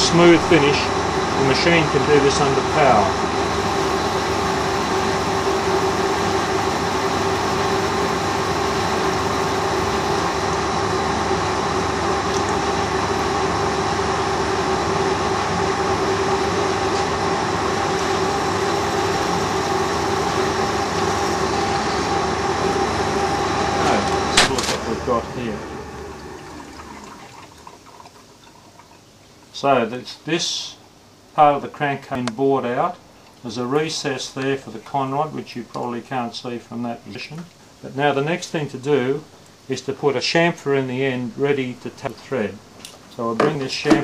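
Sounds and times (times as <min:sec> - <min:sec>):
lathe machine hum: 0:00.0 - 0:27.4.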